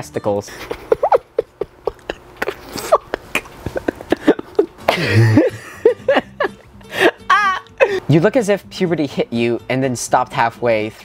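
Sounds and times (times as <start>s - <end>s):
young man laughing: 0.5s - 8.1s.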